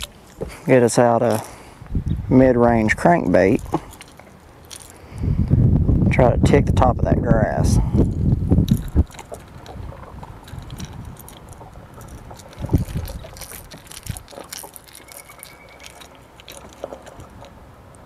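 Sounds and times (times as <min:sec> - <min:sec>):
handling clicks and rustles: 0:00.0 - 0:02.0, 0:02.6 - 0:05.3, 0:07.2 - 0:18.0.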